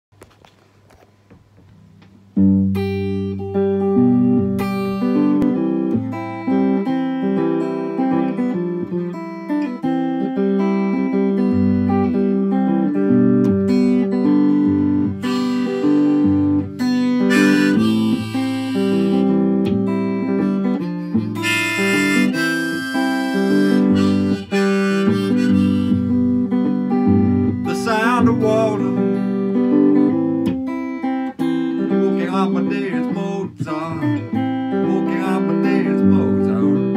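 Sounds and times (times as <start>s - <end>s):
guitar strumming chords: 2.3s - 36.9s
harmonica melody: 9.8s - 36.9s.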